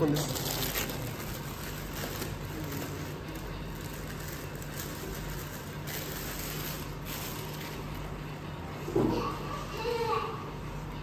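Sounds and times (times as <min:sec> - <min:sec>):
plastic bags rustling: 0:00.0 - 0:08.2
low room hum: 0:00.0 - 0:11.0.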